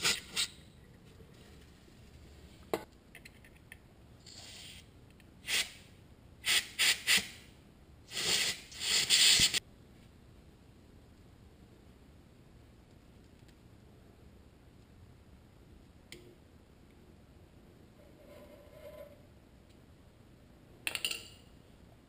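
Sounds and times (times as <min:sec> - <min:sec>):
aerosol spray can hissing: 0:08.1 - 0:09.6.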